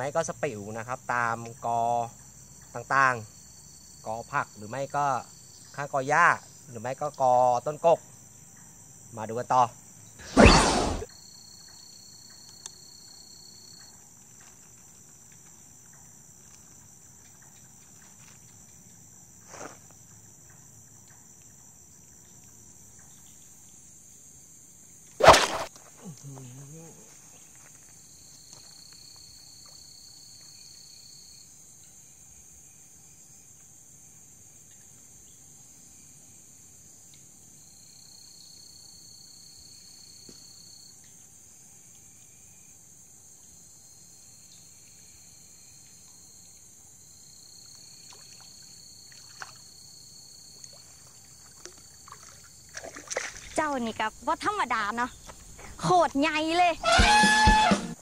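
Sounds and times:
crickets chirping: 0.0 - 58.0
insect buzzing: 9.8 - 11.4, 24.9 - 25.8, 43.8 - 58.0.

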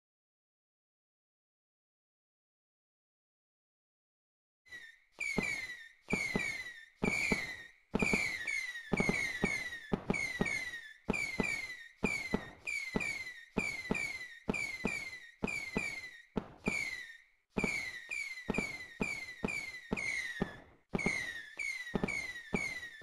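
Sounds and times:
fireworks popping and whistling: 4.7 - 23.0.

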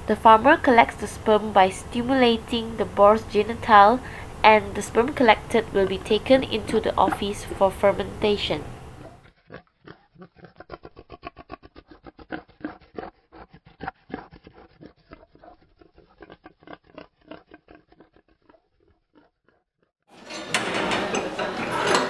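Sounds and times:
boar grunting rhythmically: 8.8 - 19.6.

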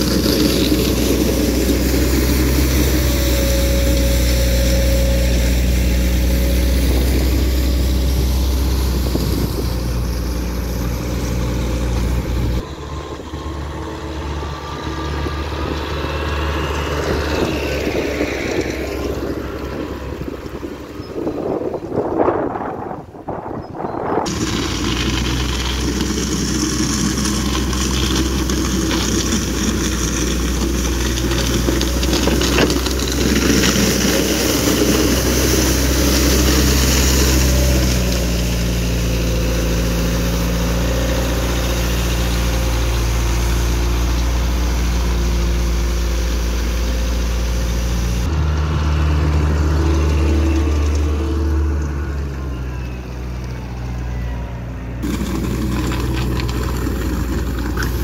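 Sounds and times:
rotary brush scraping asphalt: 0.0 - 13.8, 24.2 - 48.4, 55.0 - 58.0
diesel engine running: 0.0 - 58.0.

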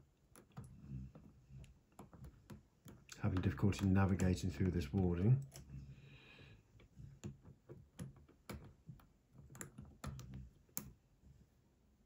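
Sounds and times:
lock pick clicking and scraping: 5.4 - 5.8, 6.8 - 11.0.

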